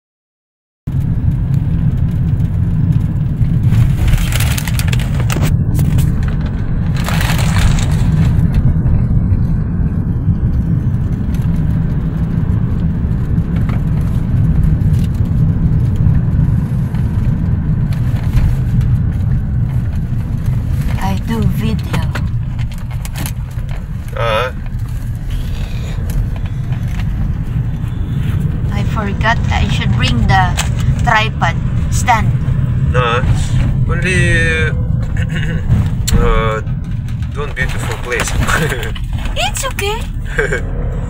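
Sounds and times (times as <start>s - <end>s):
car road and engine rumble: 0.9s - 41.0s.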